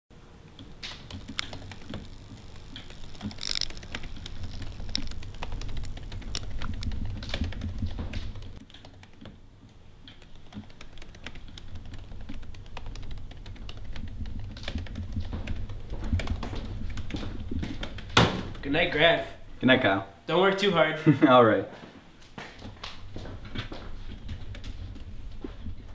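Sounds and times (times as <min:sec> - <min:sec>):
low steady hum: 0:00.2 - 0:20.3
keyboard typing: 0:00.8 - 0:09.4, 0:10.0 - 0:18.2.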